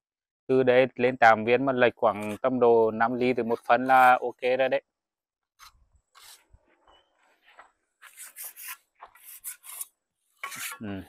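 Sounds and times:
tool scraping mortar off wall: 8.0 - 10.8.

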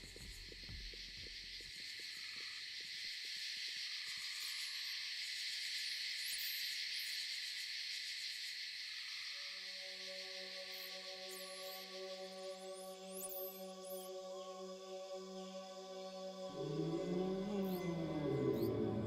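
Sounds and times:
crickets chirring: 0.0 - 19.0
soft owl hoots: 16.3 - 19.0.

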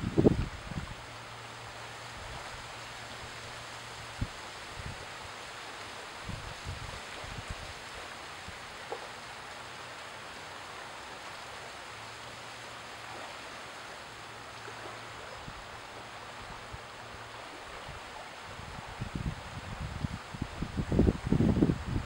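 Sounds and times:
small waves lapping over sand: 0.0 - 21.8.

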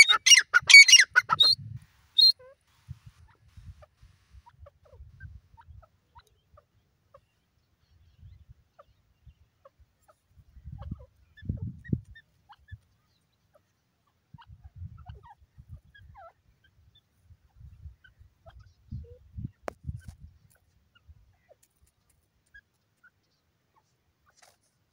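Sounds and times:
bird chirps and whistles: 2.2 - 2.4.

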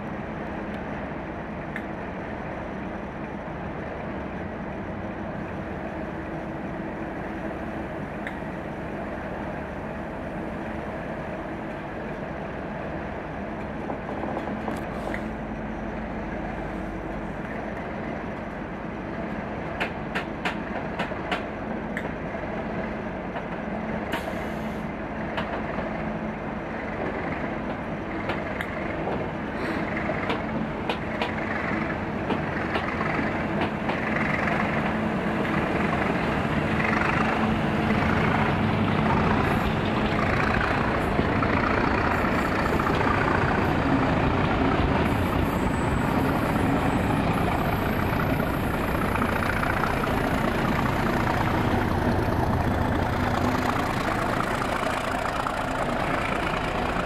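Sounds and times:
diesel locomotive engine droning: 0.0 - 57.0
moving train coaches: 0.0 - 57.0.

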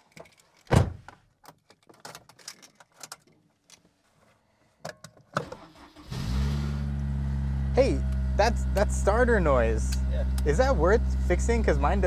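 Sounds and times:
starter motor cranking engine: 5.5 - 12.0.

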